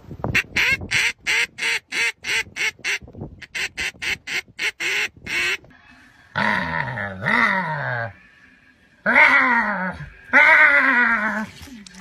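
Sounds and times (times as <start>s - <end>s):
duck call quacks: 0.3s - 5.6s.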